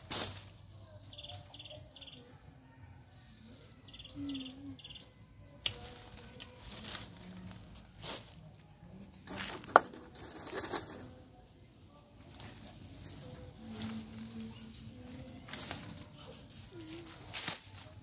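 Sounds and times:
branches snapping: 0.0 - 0.6, 5.6 - 7.3
leaves and branches rustling: 0.0 - 1.6, 5.6 - 18.0.

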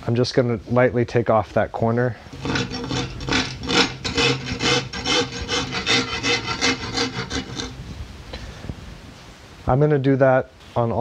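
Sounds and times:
rasp filing wood: 2.3 - 7.9.

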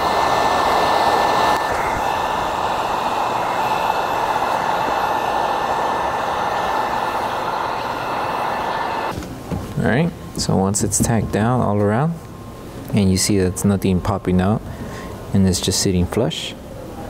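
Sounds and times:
heat gun blowing air: 0.0 - 9.2.

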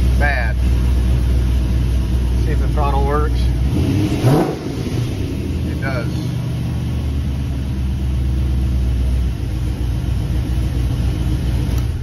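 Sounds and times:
pickup engine idling: 0.0 - 12.0.

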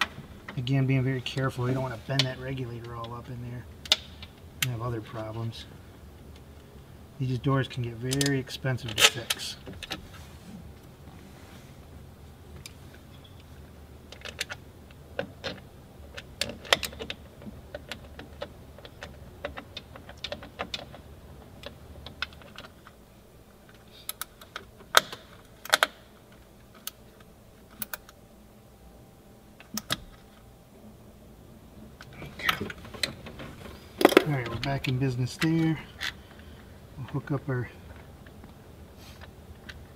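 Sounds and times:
faint low hum: 0.0 - 39.9
plastic and metal parts clicking: 23.7 - 27.0.

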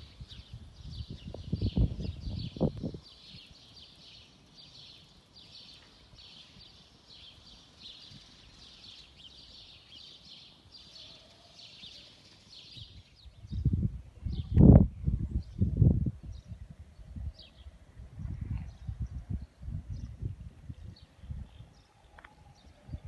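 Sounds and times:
wind rumble on microphone: 0.0 - 3.8, 12.7 - 23.0.

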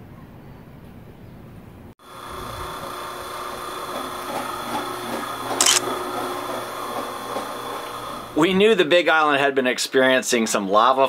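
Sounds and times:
drain-cleaning machine humming: 2.0 - 8.6.

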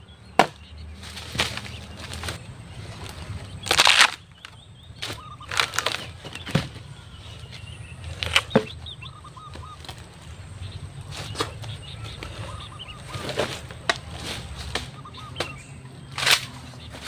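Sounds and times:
birds chirping faintly: 0.0 - 17.0
bamboo cracking and snapping: 0.4 - 2.4, 3.0 - 6.7, 8.1 - 8.6, 16.1 - 16.6.

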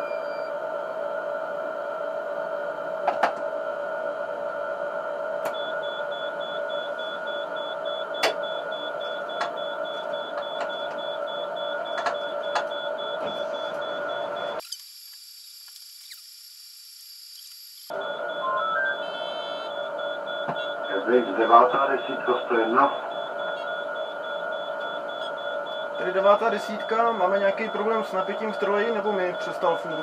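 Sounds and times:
electrical whine: 0.0 - 30.0
faint high-pitched tone: 18.4 - 19.6.

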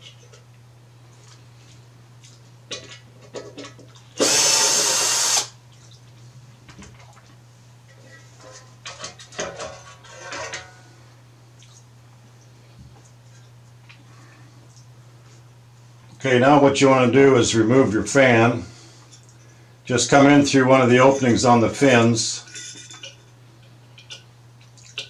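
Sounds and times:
cordless drill running: 4.2 - 5.6.

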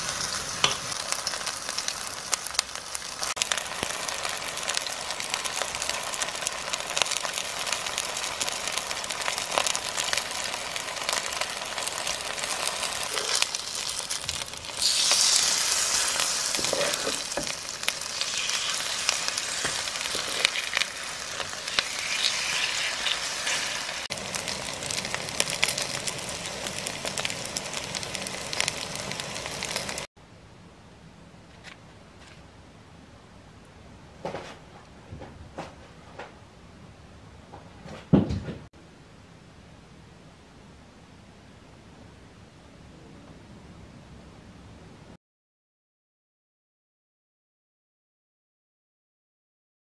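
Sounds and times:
pancakes frying in oil: 0.0 - 30.1.

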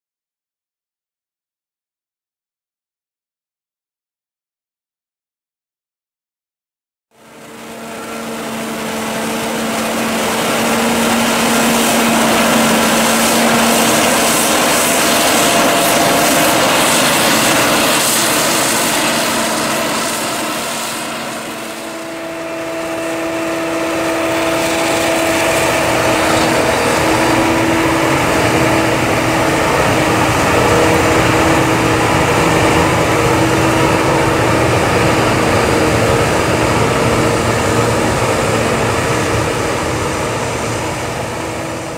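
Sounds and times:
harvester engine drone: 7.1 - 41.9
tractor engine drone: 7.1 - 41.9
crop hissing through harvester: 9.5 - 33.1.

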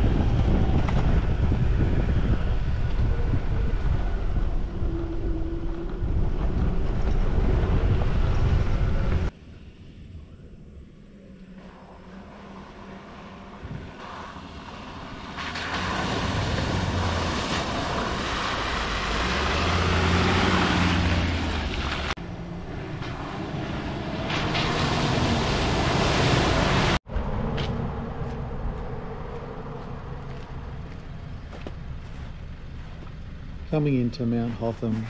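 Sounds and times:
vehicle engine running: 27.0 - 35.0.

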